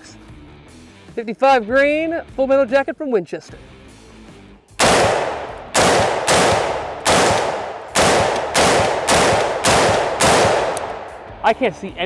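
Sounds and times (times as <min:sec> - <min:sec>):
rifle gunshots: 0:04.8 - 0:11.3.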